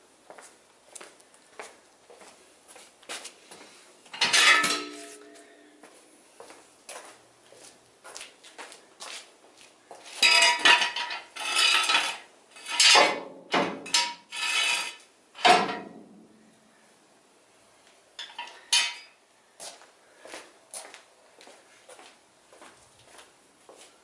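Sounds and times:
light footsteps: 0:00.3 - 0:03.8, 0:04.8 - 0:10.2, 0:19.6 - 0:24.0
metal jack stands clanking: 0:04.1 - 0:05.4, 0:10.2 - 0:16.0, 0:18.2 - 0:19.1.

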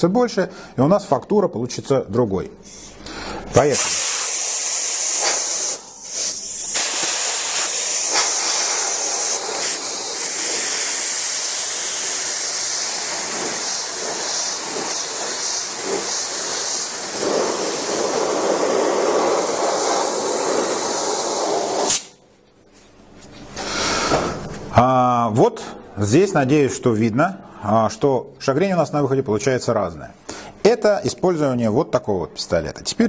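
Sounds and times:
spray gun hissing: 0:03.7 - 0:22.2.

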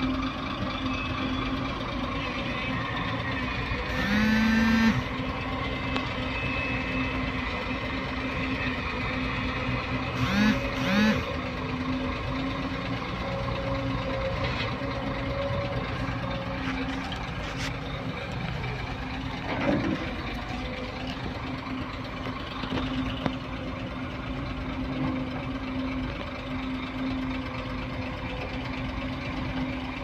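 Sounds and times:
diesel engine hum: 0:00.0 - 0:30.0
horn blasts: 0:03.9 - 0:05.2, 0:10.2 - 0:11.3.

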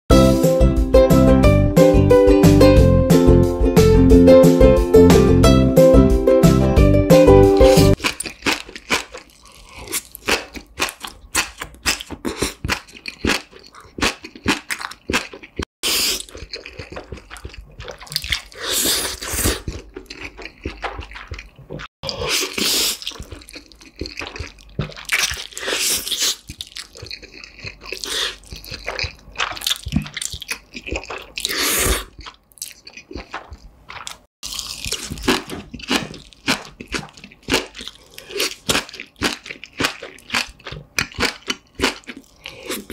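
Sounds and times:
wet chewing and crunching: 0:07.6 - 0:42.9
noodle slurps: 0:15.2 - 0:30.1, 0:30.9 - 0:32.4.

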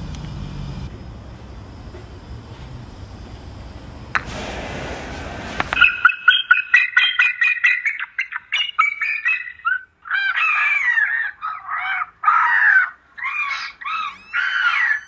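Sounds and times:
seagull cries: 0:05.8 - 0:15.0.

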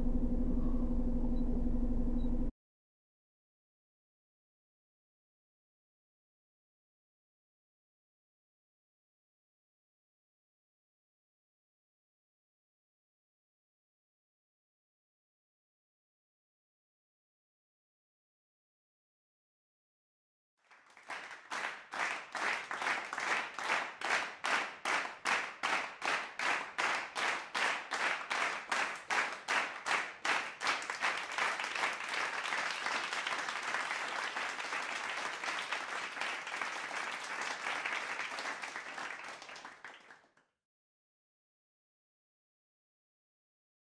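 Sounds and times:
audience clapping in unison: 0:20.6 - 0:40.4
continuous applause: 0:20.6 - 0:40.4.

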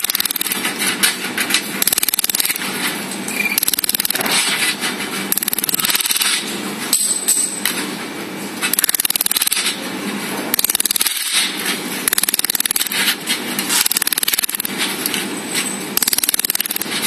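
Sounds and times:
laser welder buzzing ticks: 0:00.0 - 0:00.6, 0:01.8 - 0:02.6, 0:03.6 - 0:04.2, 0:08.8 - 0:09.6, 0:10.6 - 0:11.3, 0:12.1 - 0:13.0, 0:13.8 - 0:15.2, 0:16.0 - 0:16.9.

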